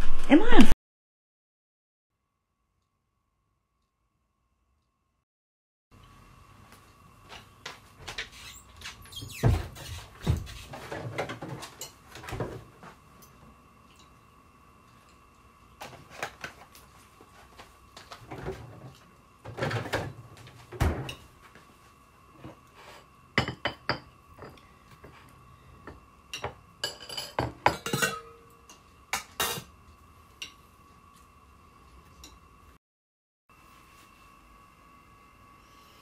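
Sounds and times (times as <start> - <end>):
faint steady hum: 6.0 - 32.8, 33.5 - 36.0
cutlery clinking against plates: 26.4 - 29.7.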